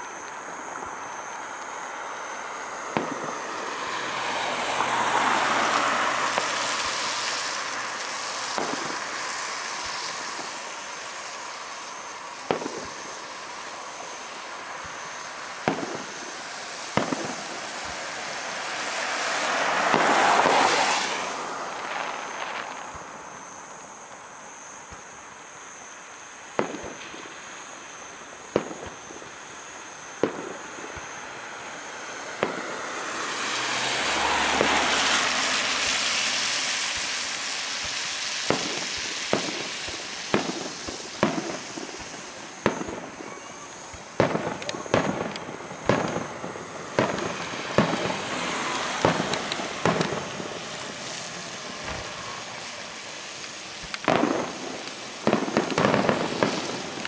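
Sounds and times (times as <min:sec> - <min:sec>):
fireworks bursting bangs: 0:00.0 - 0:57.0
rushing noise: 0:31.0 - 0:42.7.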